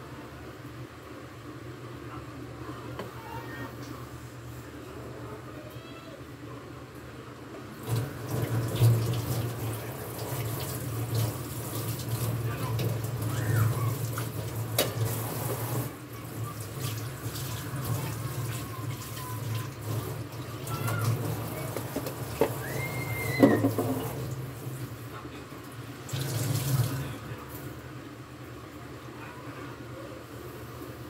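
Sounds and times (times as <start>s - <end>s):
tap running into sink: 14.2s - 15.8s, 20.8s - 24.4s.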